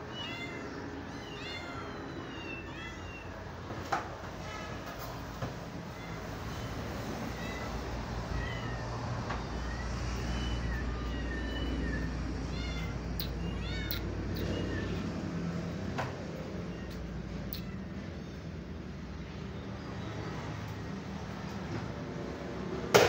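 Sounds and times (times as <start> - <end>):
kittens mewing: 0.0 - 3.6, 5.7 - 18.6.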